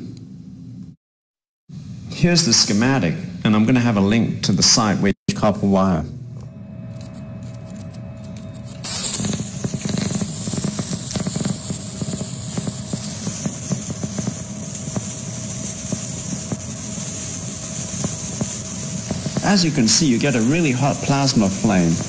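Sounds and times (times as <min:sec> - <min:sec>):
thin steady whine: 0:05.3 - 0:22.0
plasma arc hissing and crackling: 0:08.7 - 0:22.0.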